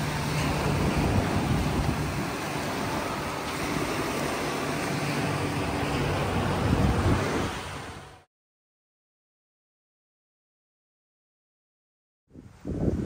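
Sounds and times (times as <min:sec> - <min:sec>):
wind gusting on microphone: 0:00.0 - 0:08.2, 0:12.3 - 0:13.0
surf washing on beach: 0:00.0 - 0:08.3, 0:12.4 - 0:13.0.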